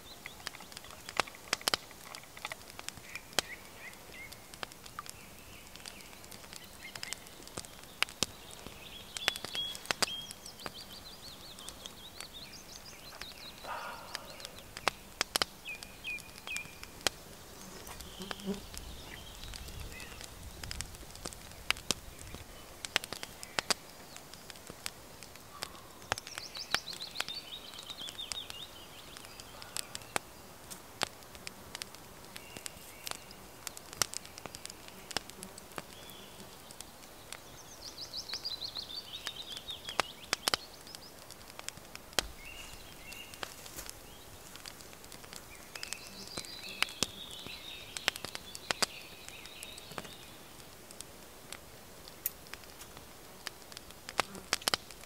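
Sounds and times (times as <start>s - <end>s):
wood fire crackling: 0.0s - 55.0s
songbird trilling: 8.8s - 16.8s.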